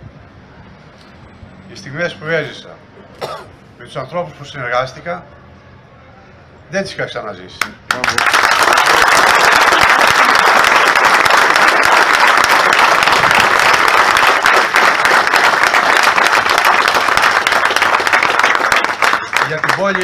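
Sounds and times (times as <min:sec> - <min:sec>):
crowd applauding: 0:07.9 - 0:20.0.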